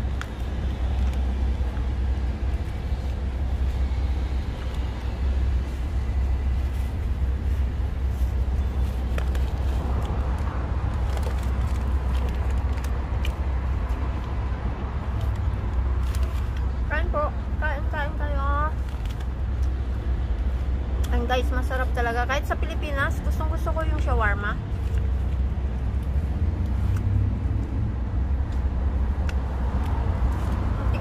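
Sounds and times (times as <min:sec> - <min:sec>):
outdoor street noise rumble: 0:00.0 - 0:31.0
paper and foil crinkling: 0:06.6 - 0:13.4, 0:18.8 - 0:19.5.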